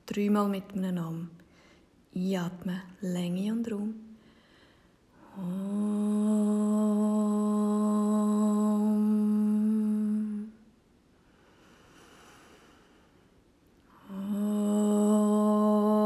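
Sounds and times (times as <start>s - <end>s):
faint breath: 1.4s - 2.0s, 4.1s - 5.4s, 11.2s - 14.3s
person humming low note: 5.2s - 10.7s, 14.0s - 16.0s.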